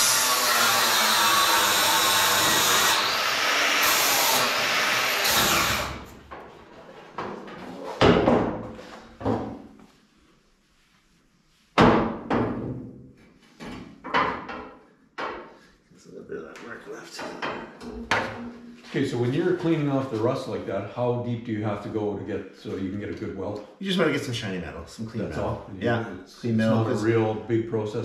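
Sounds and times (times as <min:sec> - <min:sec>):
grinder running against steel: 0:00.0 - 0:06.1
sharp knocks and clunks: 0:07.2 - 0:09.7, 0:11.8 - 0:13.0, 0:13.6 - 0:15.6, 0:17.2 - 0:18.7.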